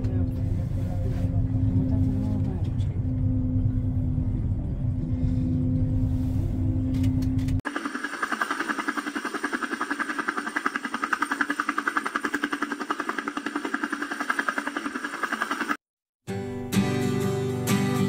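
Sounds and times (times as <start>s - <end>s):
drone propellers whining: 7.7s - 15.8s.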